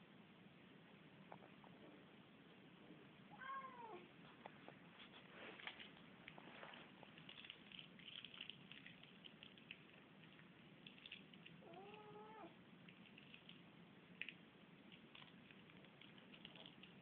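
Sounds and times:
cat meowing faintly: 3.3 - 4.1, 11.6 - 12.6.

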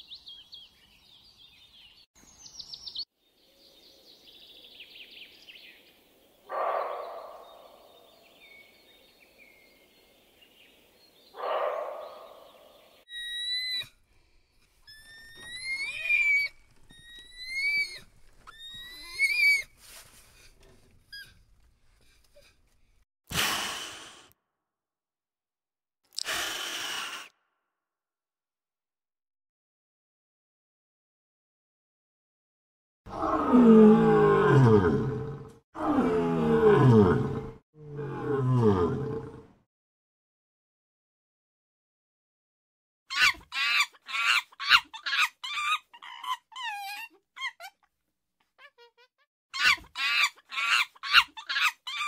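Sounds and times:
animal high calls: 14.8 - 19.7, 43.1 - 47.8, 48.6 - 52.0
lion roaring: 33.1 - 39.5.

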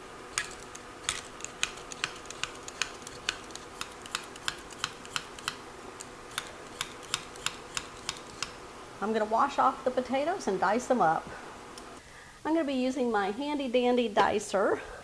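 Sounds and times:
vegetable peeler scraping potato: 0.3 - 8.6.

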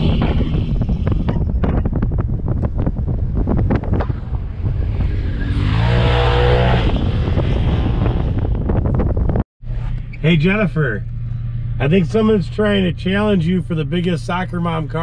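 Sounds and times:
wind buffeting microphone: 0.0 - 9.5
off-road vehicle engine running: 0.0 - 15.0
engine revving hard: 4.8 - 8.4.

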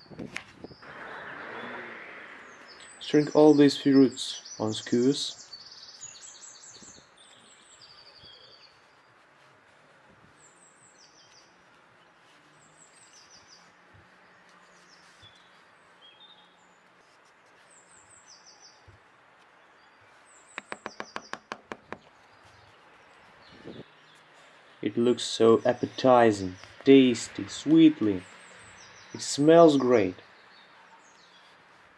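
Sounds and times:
small birds chirping: 0.0 - 31.9
sharp knocks: 20.6 - 22.1.

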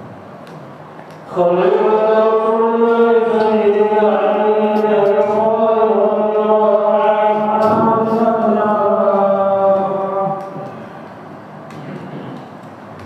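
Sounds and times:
man chanting into microphone: 1.2 - 11.1.

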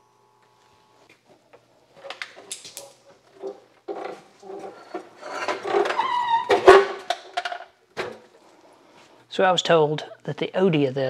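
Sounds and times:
metal clunks and rattles: 3.3 - 8.3.

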